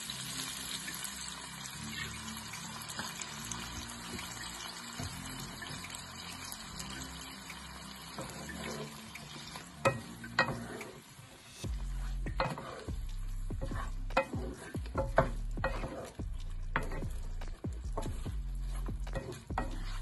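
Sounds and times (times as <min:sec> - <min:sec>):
food sizzling in a wok: 0:00.0 - 0:20.0
spatula scraping and knocking pan: 0:08.1 - 0:20.0.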